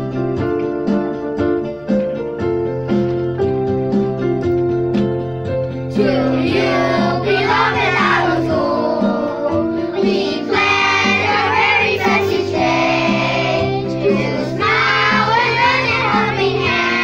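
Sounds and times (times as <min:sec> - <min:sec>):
instrumental accompaniment: 0:00.0 - 0:17.0
children singing together: 0:05.9 - 0:17.0.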